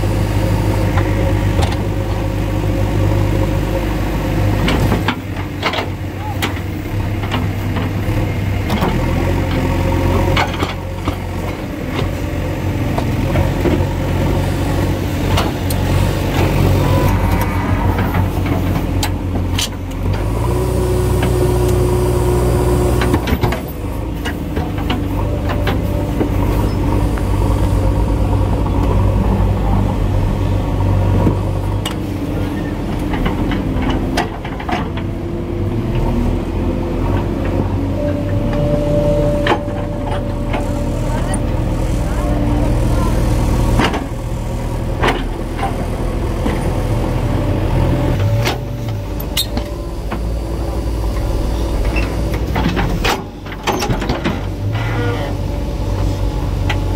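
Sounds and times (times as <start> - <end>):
diesel engines under load: 0.0 - 56.9
sharp clanks and knocks: 51.2 - 54.8.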